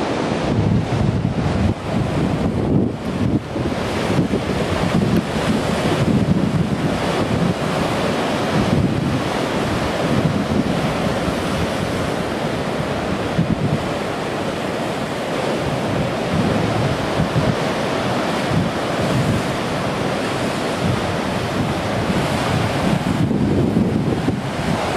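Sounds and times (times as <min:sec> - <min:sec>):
wind buffeting microphone: 0:00.0 - 0:24.9.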